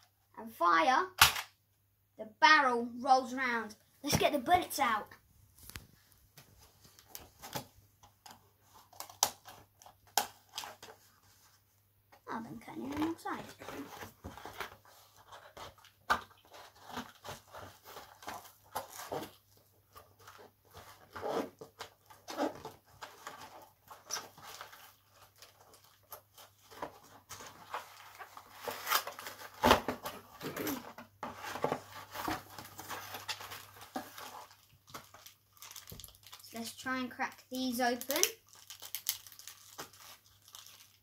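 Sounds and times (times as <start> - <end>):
plastic packaging rustling: 12.3 - 41.0.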